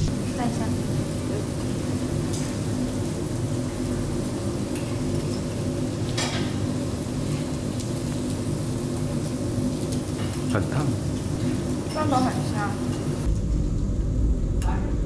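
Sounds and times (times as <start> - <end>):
meat sizzling on a grill: 0.0 - 13.3
low hum: 11.3 - 15.0.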